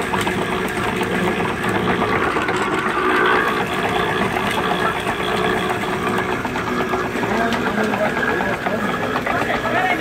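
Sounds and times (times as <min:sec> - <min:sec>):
roller mill running: 0:00.0 - 0:10.0.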